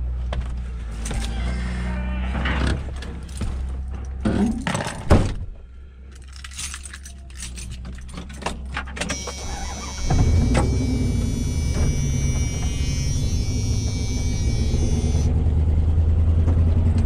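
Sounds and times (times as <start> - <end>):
door clinking and rattling: 2.5 - 5.5, 6.1 - 15.0
low engine hum: 7.3 - 17.0
truck door slamming: 9.2 - 15.1.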